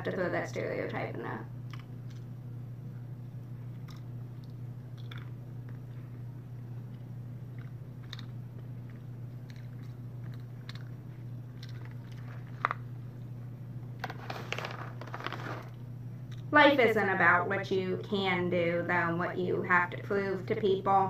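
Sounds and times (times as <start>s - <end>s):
low electrical hum: 0.0s - 21.0s
chewing and crunching food: 1.6s - 2.5s, 3.3s - 13.3s, 14.0s - 16.5s.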